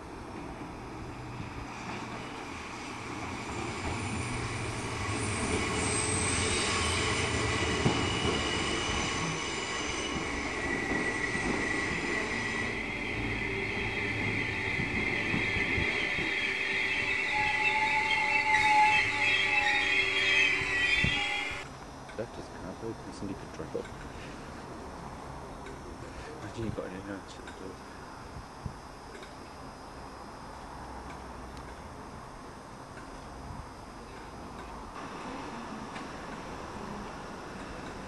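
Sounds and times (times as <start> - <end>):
train rumble: 0.0 - 21.7, 33.0 - 38.0
train wheels squealing: 1.4 - 21.7.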